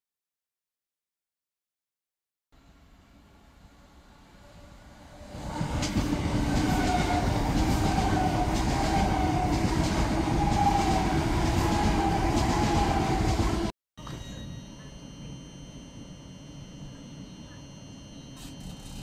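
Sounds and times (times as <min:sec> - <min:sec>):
train wheels rushing on rail: 0:04.5 - 0:13.7
faint whine: 0:14.0 - 0:19.0.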